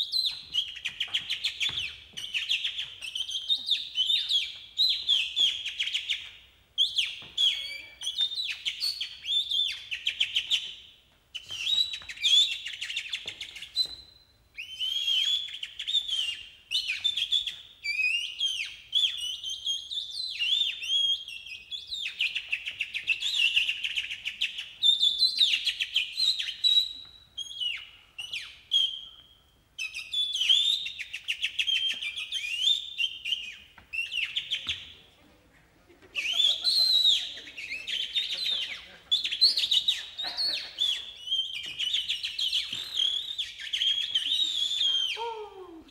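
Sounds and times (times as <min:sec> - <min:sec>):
person imitating birdsong: 0:44.9 - 0:45.9.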